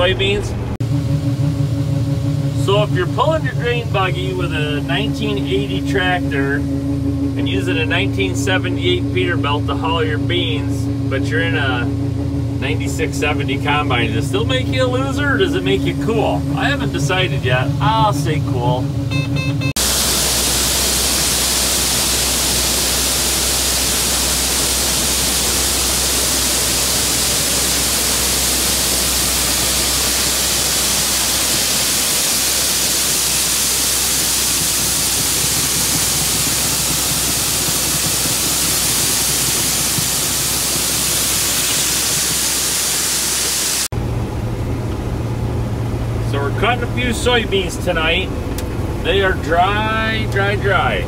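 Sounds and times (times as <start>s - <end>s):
low hum: 0.0s - 51.0s
steady rushing hiss: 19.8s - 43.9s.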